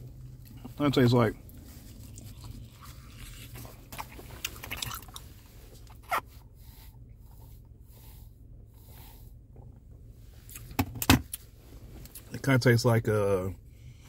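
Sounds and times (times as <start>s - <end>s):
person chewing crunchy chicken: 1.5s - 5.3s.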